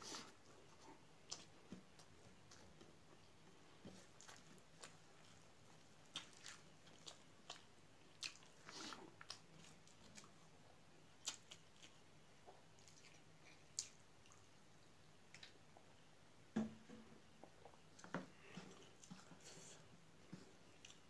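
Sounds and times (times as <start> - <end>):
hand squishing rice: 3.6 - 10.5.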